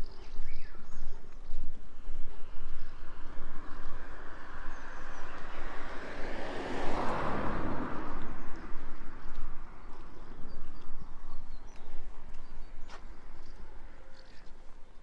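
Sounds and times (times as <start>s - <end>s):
road vehicle driving past: 2.1s - 14.8s.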